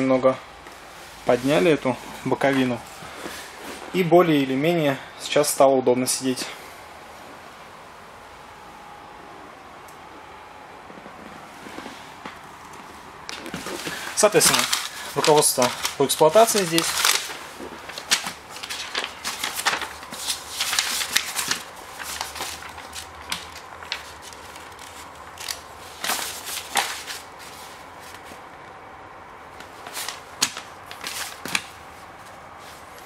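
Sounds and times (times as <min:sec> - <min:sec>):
paper pages rustling: 0:11.2 - 0:28.5, 0:29.6 - 0:33.0.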